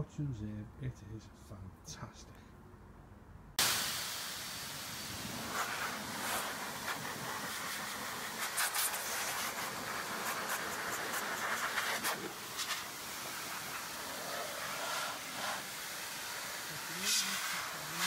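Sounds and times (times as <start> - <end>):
air dryer blowing: 3.6 - 18.0.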